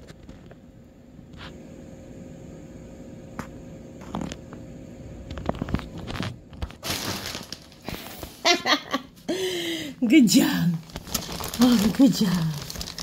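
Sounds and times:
plastic wrap crinkling: 5.3s - 8.4s, 10.3s - 13.0s.

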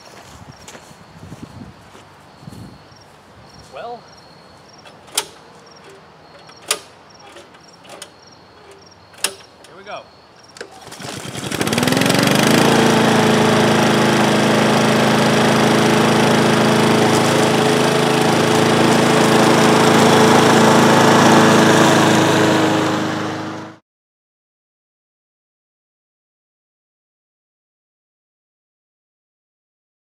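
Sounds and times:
lawn mower engine starting: 4.6s - 23.8s.

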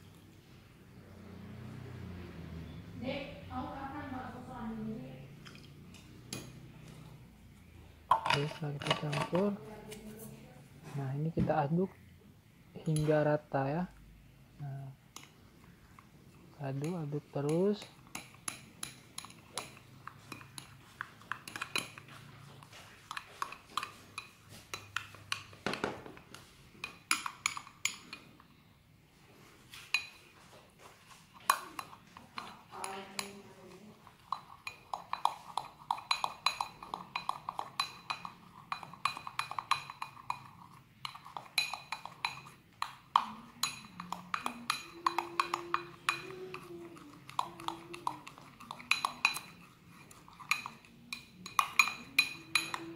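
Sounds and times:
teaspoon clinking against glass: 34.3s - 52.9s.

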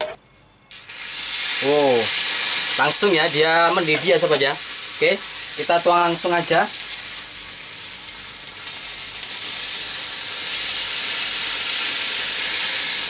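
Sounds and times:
sauce sizzling in hot pot: 0.7s - 13.0s.

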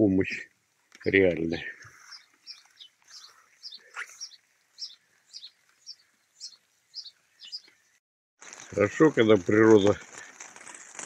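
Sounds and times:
sparrows chirping: 0.2s - 8.0s.

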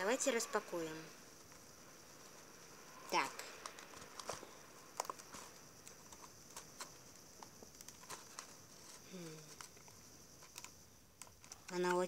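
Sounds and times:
hands handling packaging box: 3.3s - 12.0s
person humming: 9.1s - 9.6s.

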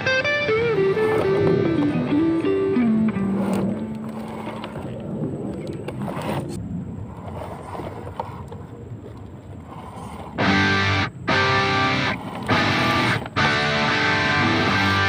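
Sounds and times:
guitar music: 0.0s - 4.7s, 10.4s - 15.0s
electric motor and drivetrain whirring: 0.0s - 15.0s.

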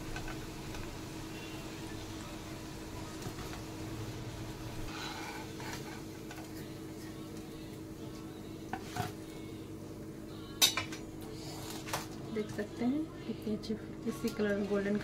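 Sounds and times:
food sizzling in hot oil: 0.0s - 9.5s
steady low hum: 0.0s - 15.0s
spatula scraping pan: 4.9s - 6.4s.

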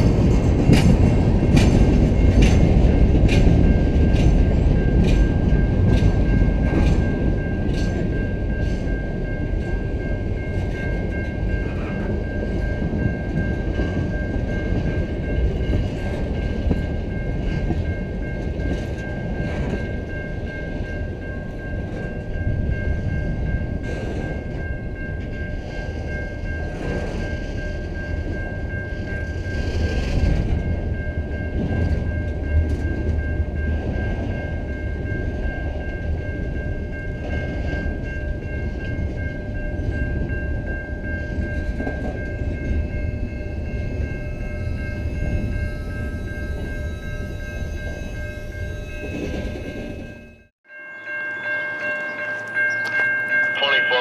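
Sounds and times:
train cars clanking: 0.0s - 50.4s
train wheels rumbling on rails: 0.0s - 50.5s
high-pitched ringing tone: 33.2s - 54.0s.

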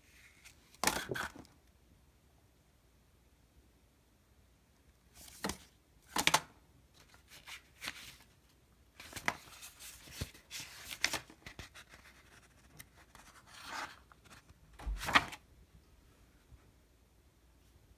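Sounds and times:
paper and cardboard rustling: 9.0s - 15.4s.

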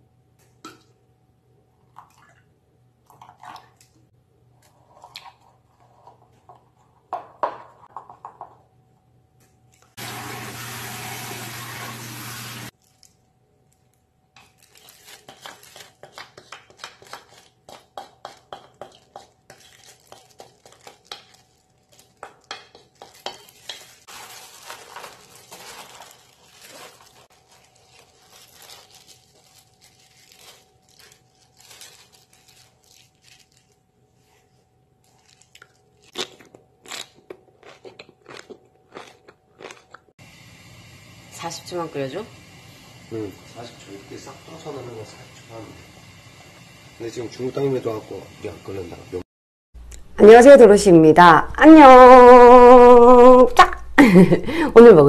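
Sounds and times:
tap water running: 10.0s - 12.7s
wet cabbage leaves crackling: 12.6s - 13.2s, 14.4s - 33.9s, 35.0s - 37.1s.

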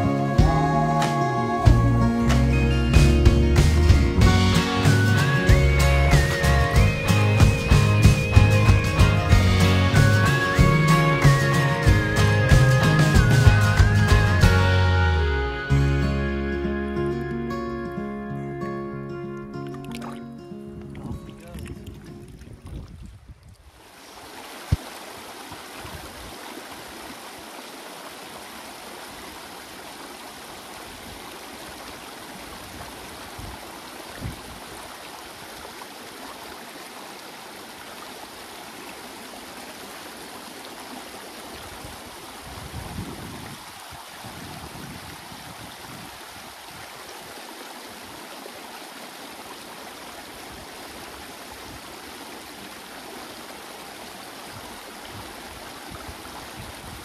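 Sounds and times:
water rushing over rocks: 19.4s - 57.0s.

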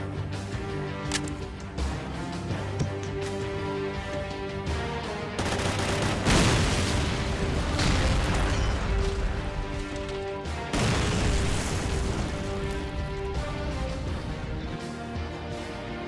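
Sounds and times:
film music score: 0.0s - 16.0s
explosions with rumbling tails: 6.2s - 9.7s.

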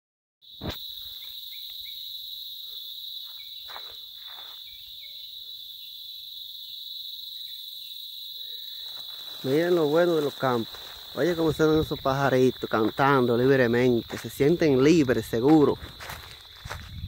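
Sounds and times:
insects droning: 0.4s - 17.0s
bird chirps: 2.9s - 9.4s.

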